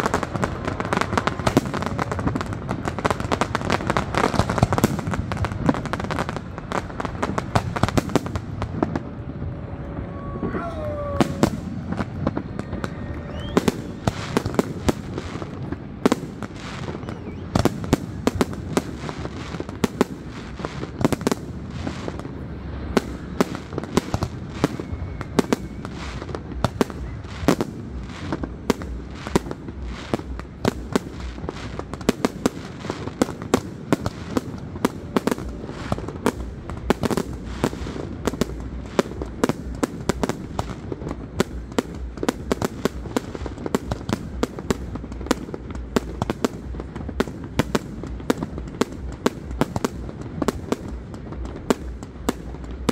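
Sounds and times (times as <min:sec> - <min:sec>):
fireworks bangs: 0:00.0 - 0:52.9
low rumble: 0:08.2 - 0:16.0.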